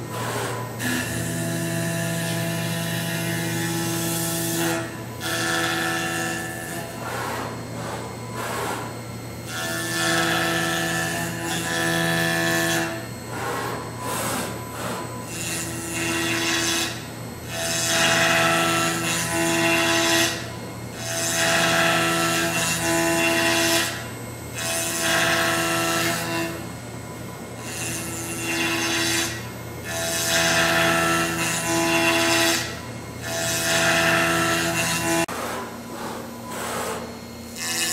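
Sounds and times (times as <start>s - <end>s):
steady machine hum: 0.0s - 30.2s
cnc spindle cutting wood: 0.0s - 37.9s.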